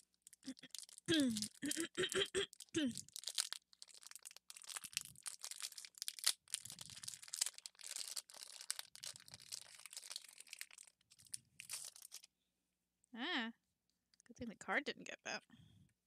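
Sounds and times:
foil pack crinkling and tearing: 0:00.0 - 0:01.6, 0:02.5 - 0:12.3.

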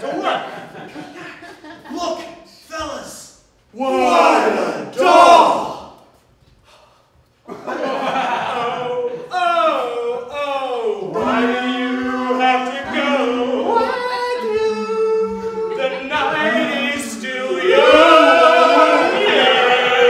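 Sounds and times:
men singing a cappella harmony: 0:10.1 - 0:20.0.

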